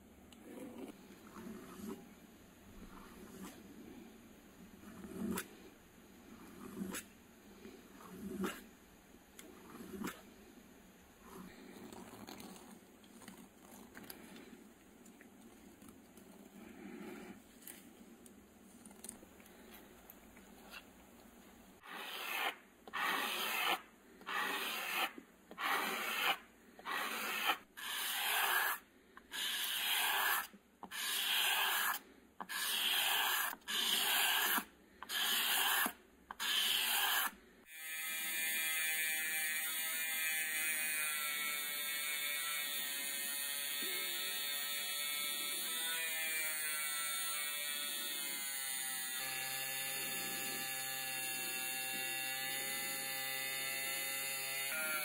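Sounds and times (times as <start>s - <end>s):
metal part rubbed on sandpaper: 21.8s - 37.4s
rotary tool polishing: 21.8s - 37.4s.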